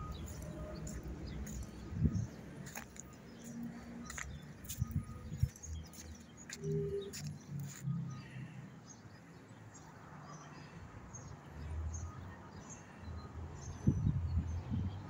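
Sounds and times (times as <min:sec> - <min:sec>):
bird chirps: 0:00.0 - 0:08.4.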